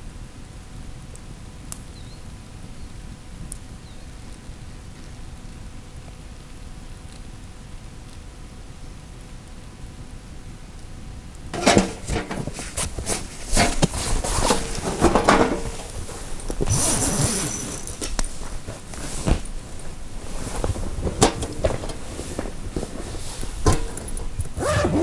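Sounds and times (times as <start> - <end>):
cloth rustling: 11.6 - 25.0.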